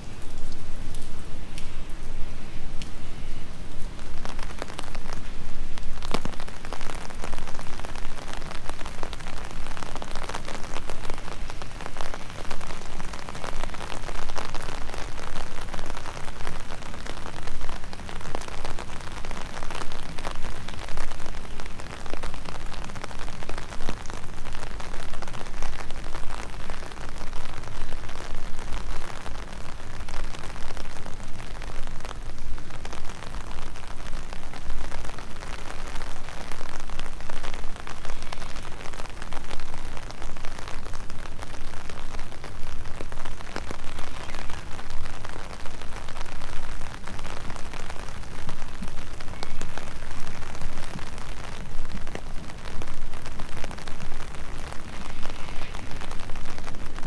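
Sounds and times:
steady rain: 0:00.0 - 0:57.0
raindrop ticks: 0:00.2 - 0:02.0, 0:02.8 - 0:03.0, 0:04.2 - 0:21.4.

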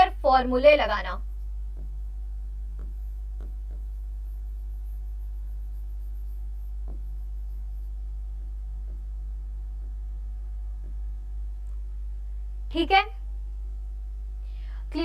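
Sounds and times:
low electrical hum: 0:00.0 - 0:15.0
faint soft taps: 0:01.4 - 0:04.1, 0:06.6 - 0:07.6.

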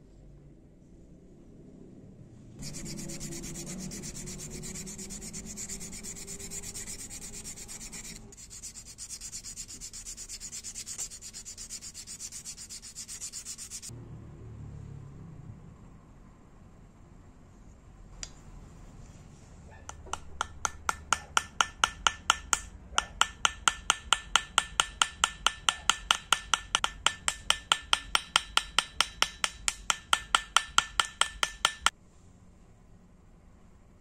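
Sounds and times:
small hammer tapping metal: 0:19.9 - 0:31.9.

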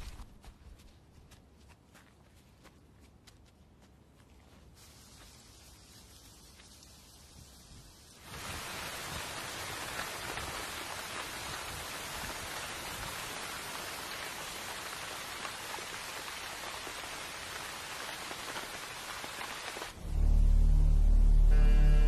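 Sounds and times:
steady rain hiss: 0:04.7 - 0:22.0.

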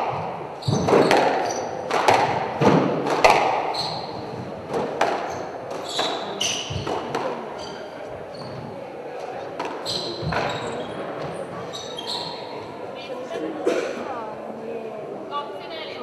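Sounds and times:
shoes squeaking on wooden floor: 0:00.0 - 0:01.9, 0:03.7 - 0:12.8
squash ball hits: 0:00.0 - 0:07.4.

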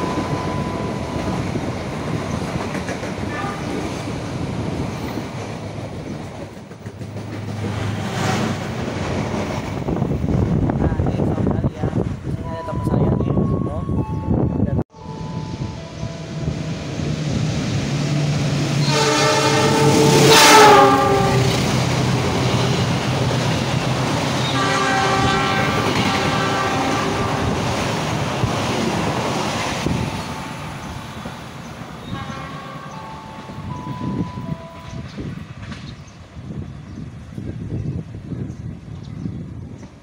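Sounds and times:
diesel locomotive engine: 0:00.0 - 0:40.0
train coaches clattering on rails: 0:00.0 - 0:40.0
train horn blasts: 0:03.3 - 0:03.8, 0:18.7 - 0:21.7, 0:24.4 - 0:27.6, 0:32.0 - 0:35.0.

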